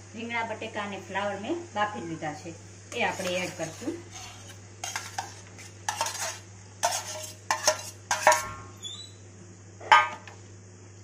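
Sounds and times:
spoon scraping metal bowl: 0:03.0 - 0:08.6.

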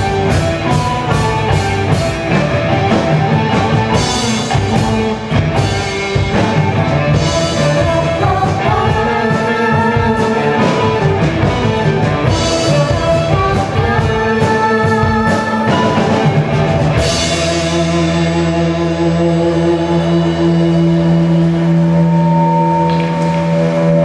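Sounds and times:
drum: 0:00.0 - 0:24.0
rock band playing: 0:00.0 - 0:24.0
gong-chimes: 0:20.2 - 0:24.0.

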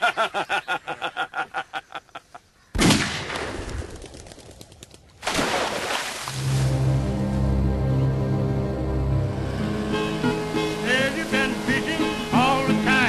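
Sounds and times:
gunshots echoing: 0:02.8 - 0:03.6.

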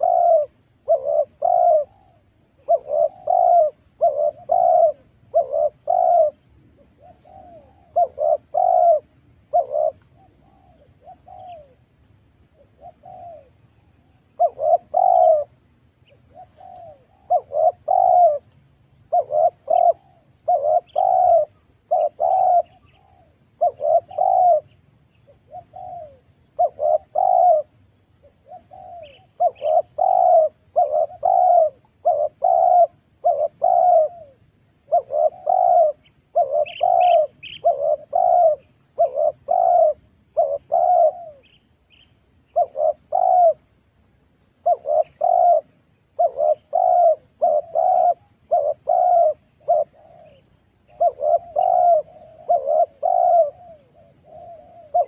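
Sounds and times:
doves cooing: 0:00.0 - 0:43.8, 0:44.6 - 0:55.0.

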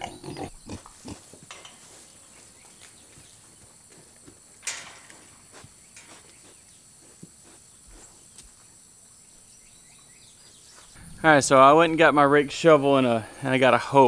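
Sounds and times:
insects chirring: 0:00.0 - 0:14.0
pigs rustling in straw: 0:00.7 - 0:04.3.

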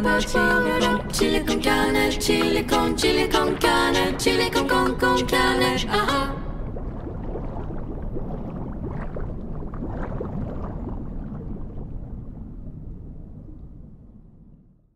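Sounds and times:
rushing gurgling water: 0:01.0 - 0:12.8.

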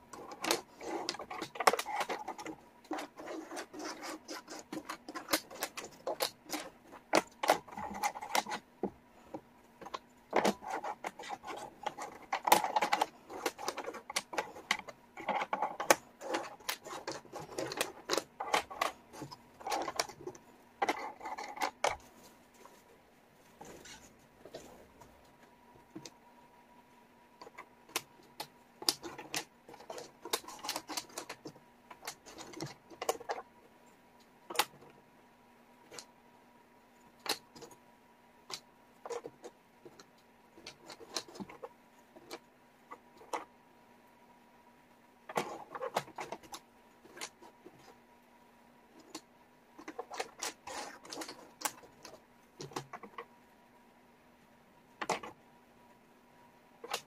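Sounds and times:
wooden puzzle pieces clicking: 0:00.1 - 0:08.6, 0:09.8 - 0:22.0, 0:27.4 - 0:33.4, 0:34.5 - 0:34.8, 0:49.0 - 0:53.3.

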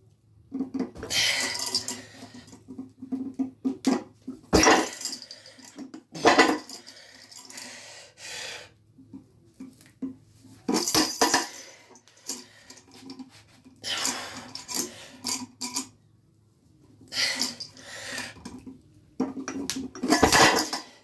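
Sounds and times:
chains and weight plates clinking: 0:01.0 - 0:03.2, 0:04.5 - 0:07.8, 0:10.7 - 0:13.2, 0:13.8 - 0:16.0, 0:17.1 - 0:17.8, 0:19.3 - 0:21.0.

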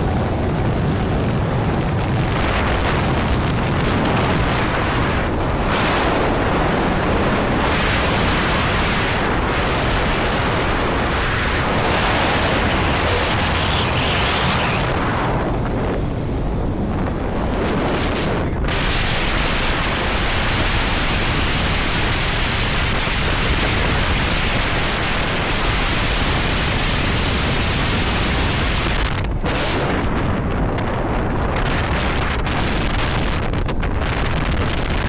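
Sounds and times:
wind roaring over microphone: 0:00.0 - 0:35.0.

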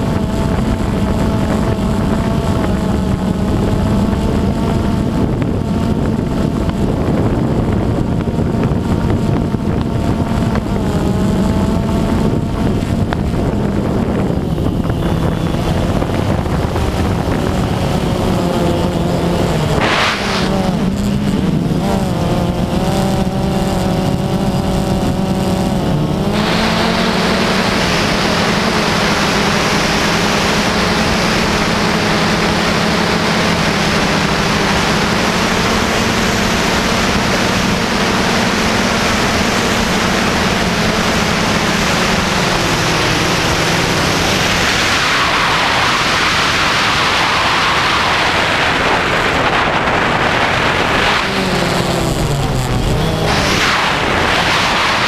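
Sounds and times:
quadcopter propellers buzzing: 0:00.0 - 0:55.0
rush of air: 0:12.7 - 0:22.2, 0:26.3 - 0:31.8, 0:41.8 - 0:55.0.

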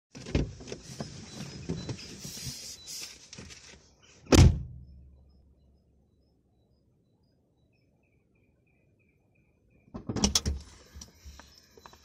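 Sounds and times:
loud thump: 0:04.3 - 0:04.8.

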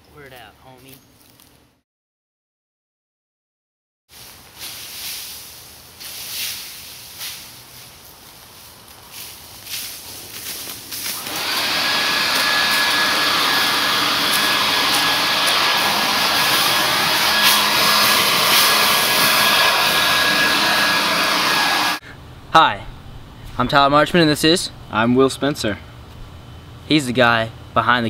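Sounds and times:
leaf blower motor whine: 0:11.0 - 0:22.0
rush of air: 0:11.2 - 0:22.1.

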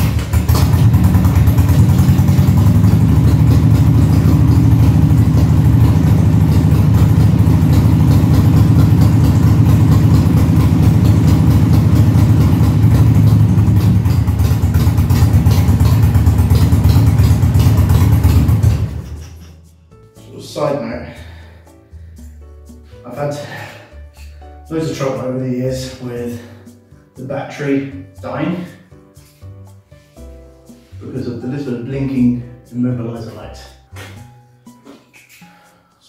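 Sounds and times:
motorcycle engine running steadily: 0:00.0 - 0:19.5.

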